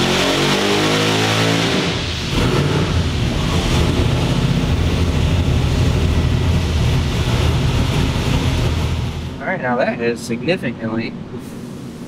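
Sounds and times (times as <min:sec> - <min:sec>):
engine running loudly under load: 0:00.0 - 0:09.4.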